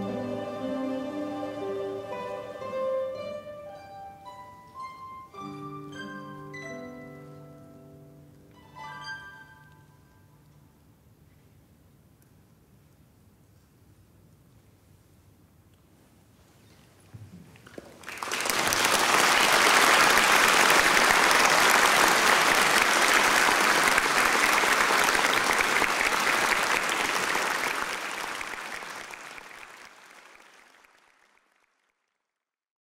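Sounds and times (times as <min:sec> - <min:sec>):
audience applauding: 0:17.6 - 0:32.1.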